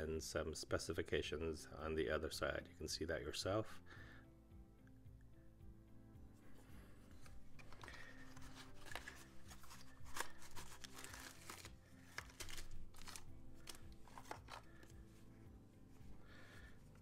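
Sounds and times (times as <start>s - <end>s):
soft background music: 0.0s - 17.0s
packaging rustling and crinkling: 7.2s - 15.1s.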